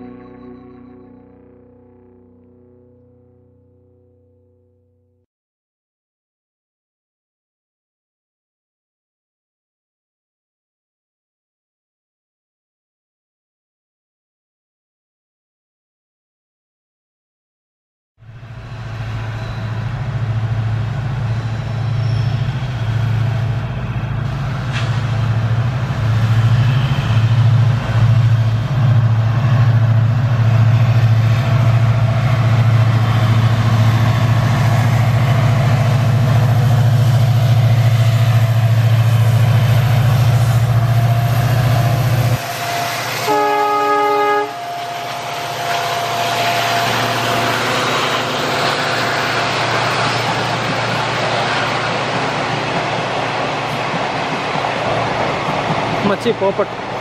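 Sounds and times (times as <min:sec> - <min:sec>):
train horn blast: 0:00.0 - 0:01.6, 0:40.5 - 0:49.5
diesel locomotive engine drone: 0:00.0 - 0:04.5, 0:18.2 - 0:57.0
train wheels rolling on rails: 0:18.5 - 0:43.2, 0:44.6 - 0:57.0.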